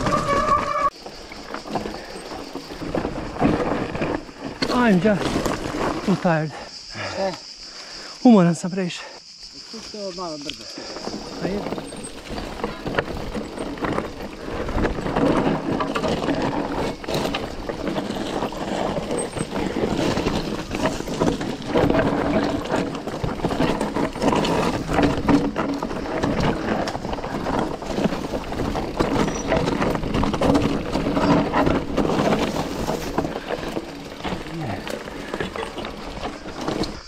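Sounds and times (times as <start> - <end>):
bike knocking on rocks: 0.0 - 6.3, 10.9 - 37.0
tyres crunching over stones: 0.0 - 7.4, 9.7 - 37.0
bike rattling: 0.0 - 8.1, 9.5 - 37.0.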